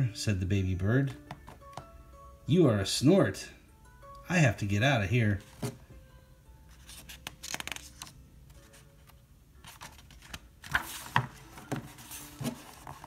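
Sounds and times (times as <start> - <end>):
book page rustling: 5.4 - 5.8, 6.7 - 13.0.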